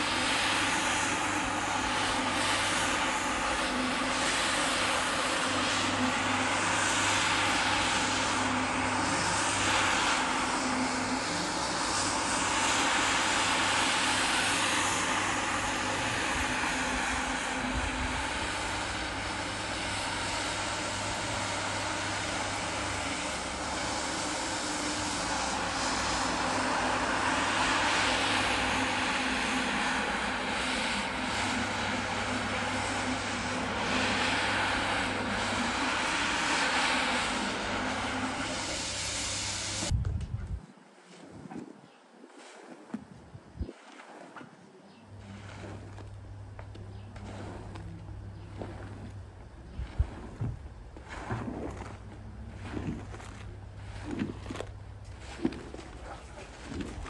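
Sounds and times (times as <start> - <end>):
floor scrubber motor humming: 0.0 - 40.0, 43.8 - 57.0
brush swishing through foam: 41.0 - 41.6, 42.2 - 44.6, 45.2 - 57.0.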